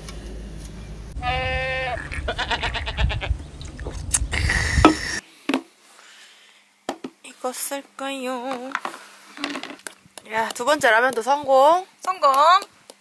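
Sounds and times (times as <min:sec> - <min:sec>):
high bleat-like voice note: 0:01.2 - 0:03.3.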